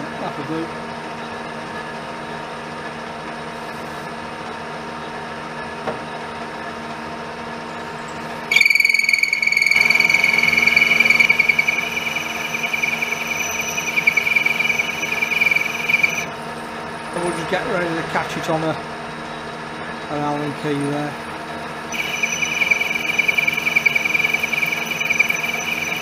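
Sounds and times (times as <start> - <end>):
metal lathe humming: 8.5 - 16.3, 21.9 - 26.0
parting tool squealing in cut: 8.5 - 16.3, 21.9 - 26.0.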